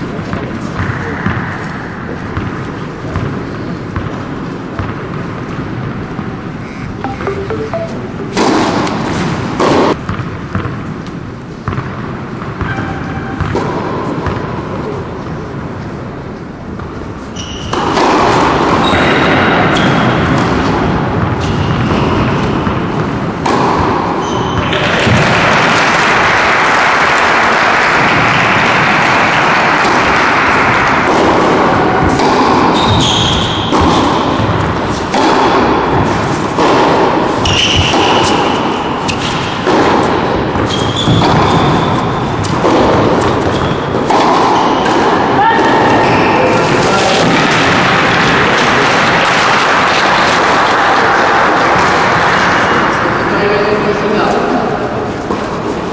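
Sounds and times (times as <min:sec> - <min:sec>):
tennis ball bouncing and struck: 0:07.0 - 0:10.8, 0:11.6 - 0:14.6, 0:16.8 - 0:25.4, 0:29.8 - 0:46.2.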